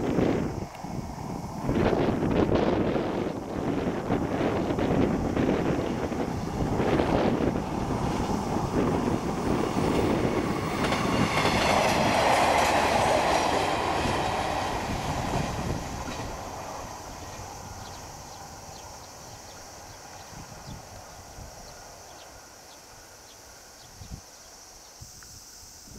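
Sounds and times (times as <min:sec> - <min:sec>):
train wheels clattering over rails: 0:01.9 - 0:20.7.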